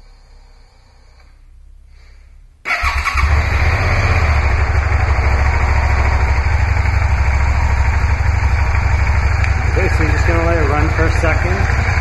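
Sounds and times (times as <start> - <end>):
motorcycle engine starting and idling: 2.6 - 12.0.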